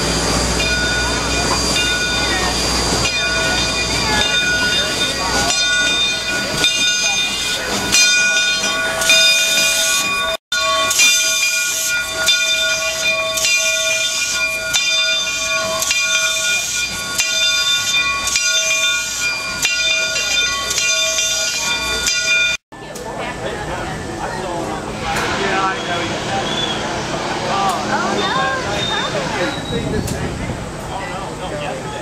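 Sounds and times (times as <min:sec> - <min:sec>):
steam hissing: 0:00.0 - 0:19.6
locomotive bell ringing: 0:00.0 - 0:22.6, 0:23.3 - 0:30.0.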